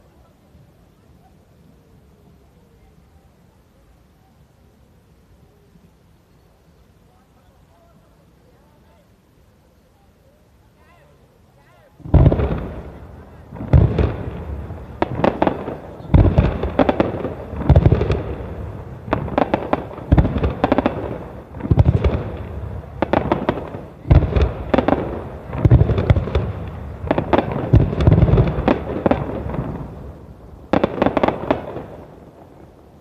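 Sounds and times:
firework crackling: 0.0s - 33.0s
firework shells booming: 12.0s - 32.5s.

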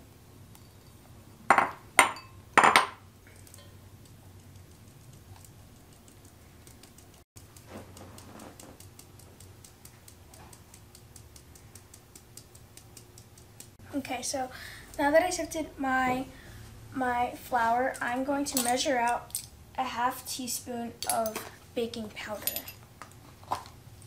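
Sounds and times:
sieve tapping ticks: 3.4s - 13.8s.

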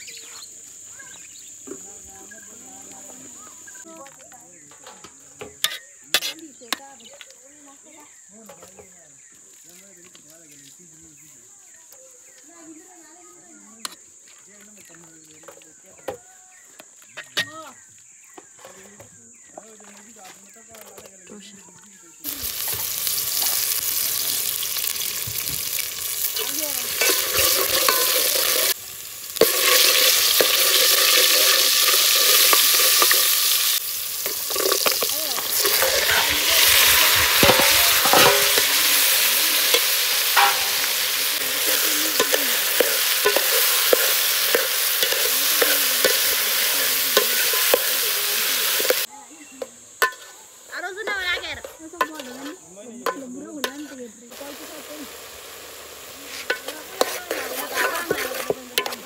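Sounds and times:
spoon scraping a pot: 5.5s - 6.4s, 26.9s - 28.8s, 29.4s - 47.9s, 56.3s - 59.0s
food sizzling in a pan: 22.2s - 59.0s.

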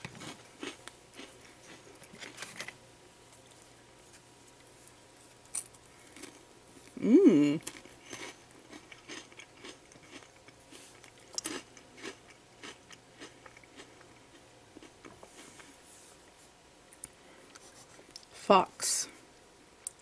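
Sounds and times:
biscuit stick crunching when chewed: 0.0s - 2.8s, 7.6s - 15.7s.

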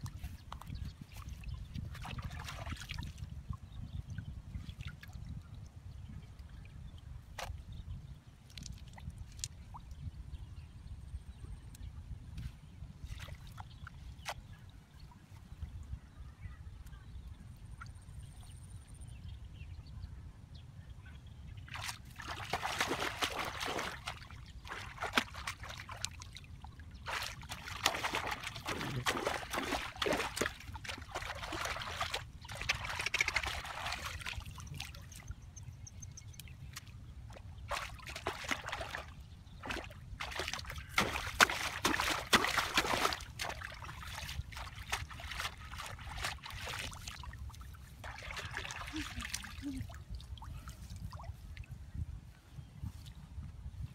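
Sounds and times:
water splashing and trickling: 0.0s - 7.7s, 21.6s - 51.8s.

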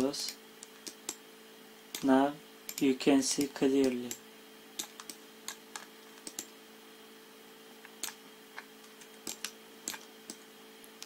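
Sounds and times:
faint steady hum: 0.0s - 11.0s
computer mouse clicks: 4.8s - 6.5s, 7.8s - 10.4s.

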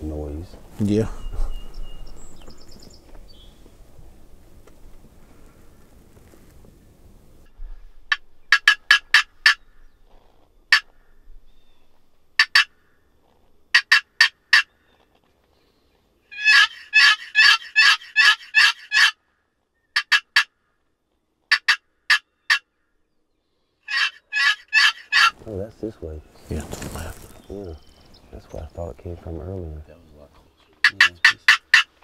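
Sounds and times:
turkey call yelps: 12.4s - 12.8s, 16.3s - 19.2s, 19.9s - 20.5s, 21.5s - 22.7s, 23.9s - 25.4s, 30.8s - 32.0s.

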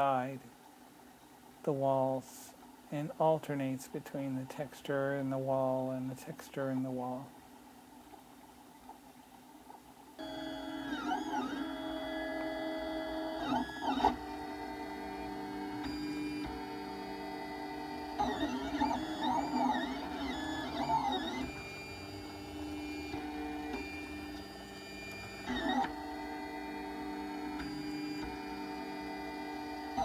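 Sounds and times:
printer stepper motors whining: 10.2s - 30.0s.

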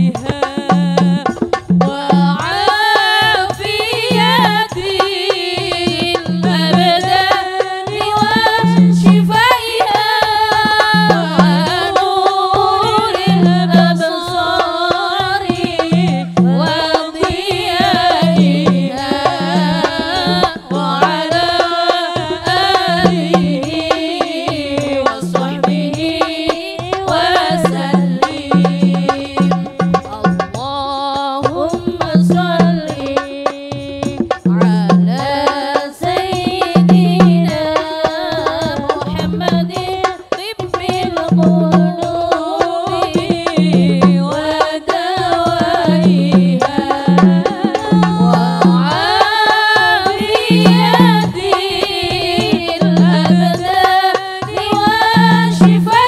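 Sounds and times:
woman singing devotional song: 0.0s - 56.0s
low drum beat: 3.5s - 9.6s, 10.4s - 30.9s, 38.6s - 40.2s, 40.8s - 44.6s, 45.3s - 56.0s.

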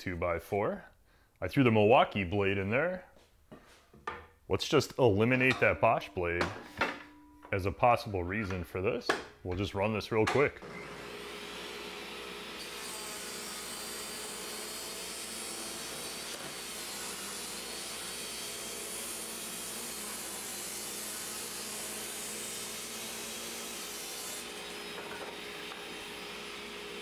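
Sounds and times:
table saw ripping wood: 10.6s - 27.0s.

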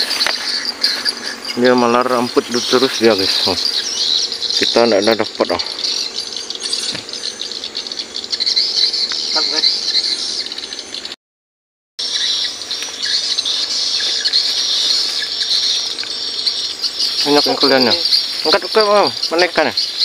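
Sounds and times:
high-pitched insect chorus: 0.0s - 11.2s, 12.0s - 20.0s.

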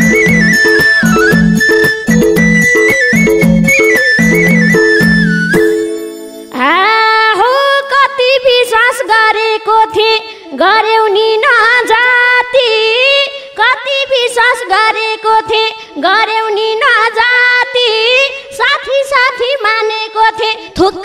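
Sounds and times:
woman singing into microphone: 6.5s - 21.0s.

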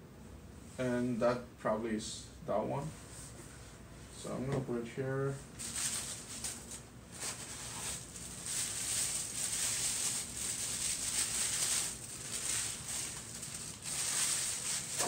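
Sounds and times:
tissue paper rustling: 5.6s - 15.0s.

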